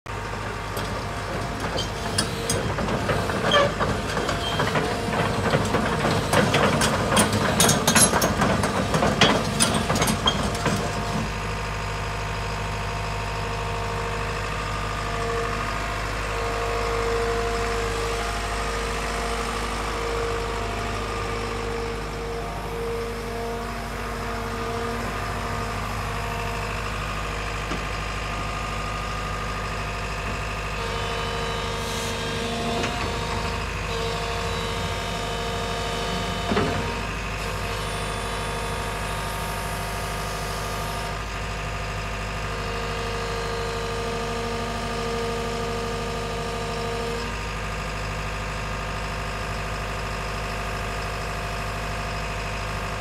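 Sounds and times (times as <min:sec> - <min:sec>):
excavator diesel engine running: 0:00.1 - 0:53.0
constant whine: 0:13.8 - 0:28.5.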